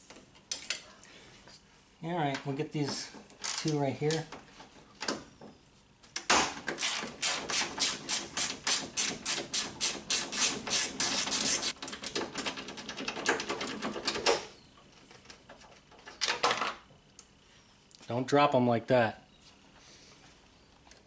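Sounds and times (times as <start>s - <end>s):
hand ratchet clicking: 6.7s - 11.8s.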